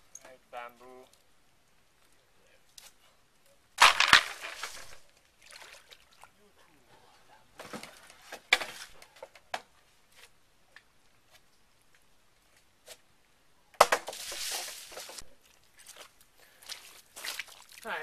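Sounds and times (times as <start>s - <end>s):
wading in muddy water: 15.4s - 18.0s.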